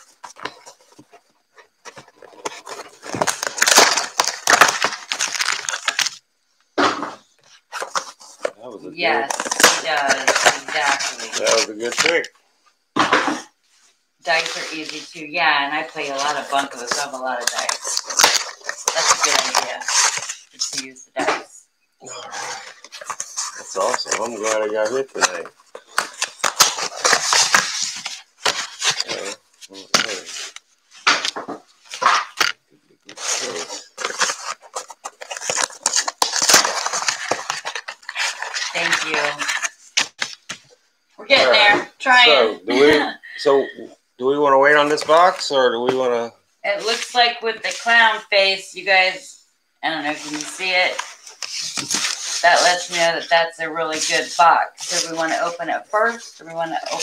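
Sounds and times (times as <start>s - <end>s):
crackling handling noise: 0.0s - 8.6s, 15.8s - 20.9s, 22.4s - 40.8s, 50.2s - 57.0s.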